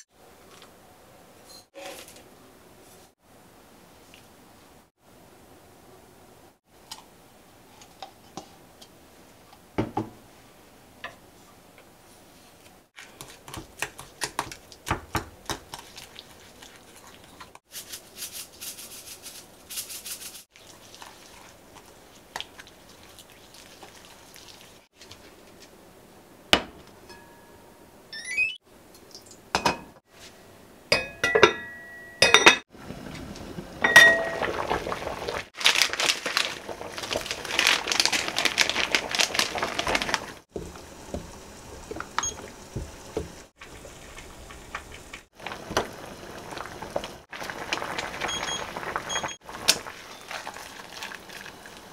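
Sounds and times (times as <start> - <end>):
water boiling in a pot: 13.8 - 19.0, 20.5 - 25.2, 32.7 - 51.9.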